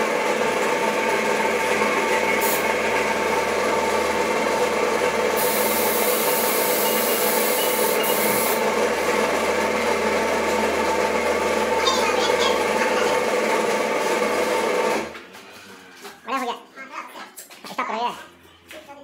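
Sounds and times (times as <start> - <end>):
steady machine hum: 0.0 - 15.8
paint spray gun hissing: 2.2 - 3.8, 5.3 - 8.7.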